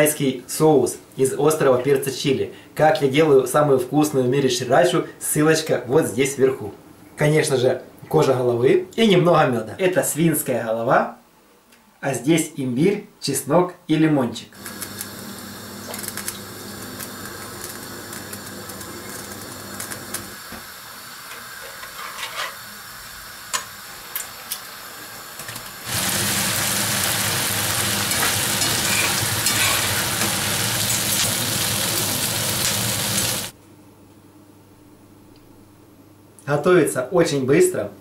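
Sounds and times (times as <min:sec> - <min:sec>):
loud sizzling in a pan: 0:14.6 - 0:33.6.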